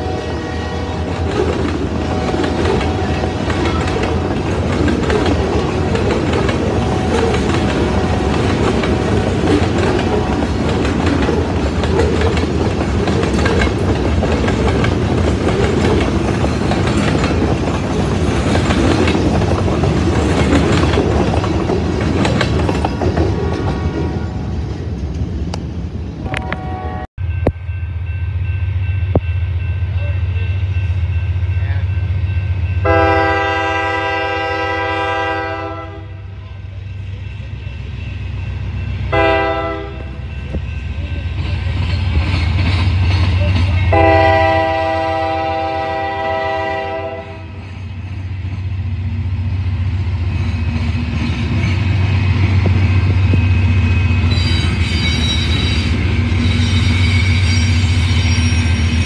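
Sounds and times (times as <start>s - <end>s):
train air horn blasts: 0.0s - 3.7s, 5.6s - 10.6s, 26.2s - 27.1s, 32.8s - 36.4s, 39.1s - 40.1s, 43.8s - 47.6s
diesel locomotive engines rumbling: 0.0s - 59.0s
wheel squeal: 53.9s - 59.0s.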